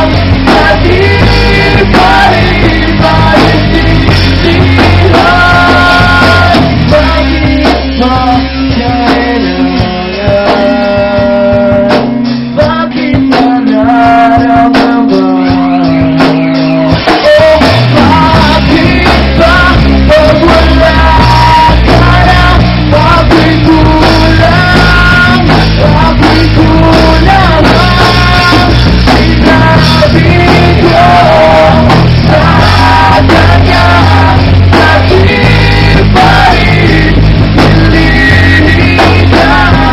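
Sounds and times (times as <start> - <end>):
live rock band playing: 0.0 - 39.9
male lead singer: 0.0 - 39.9.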